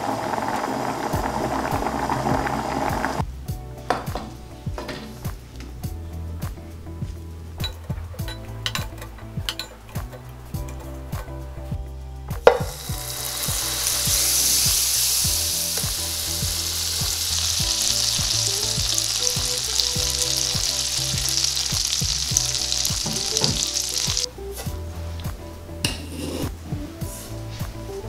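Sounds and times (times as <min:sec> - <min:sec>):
butter sizzling in frying pan: 0:00.0 - 0:03.2, 0:12.6 - 0:24.3.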